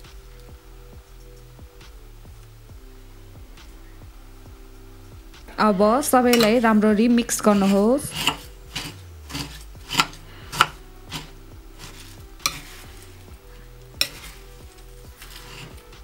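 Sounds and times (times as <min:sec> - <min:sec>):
spoon clinking and scraping bowl: 0:06.3 - 0:06.7, 0:07.3 - 0:16.0.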